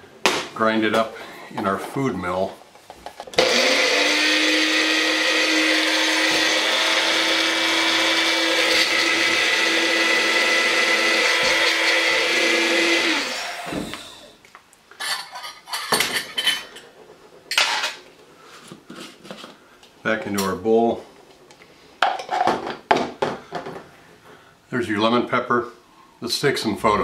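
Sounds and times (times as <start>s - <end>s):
blender motor whine: 3.4s - 14.3s.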